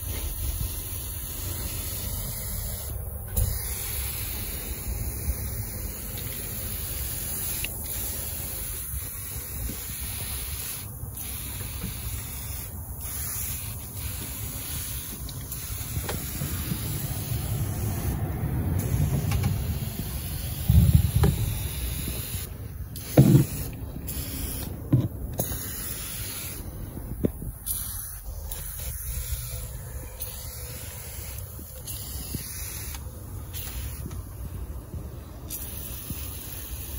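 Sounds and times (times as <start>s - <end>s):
aerosol can spraying: 0.0s - 18.2s, 18.8s - 26.7s, 27.3s - 34.1s, 35.5s - 36.9s
loud thumps: 20.7s - 22.0s, 23.0s - 25.6s.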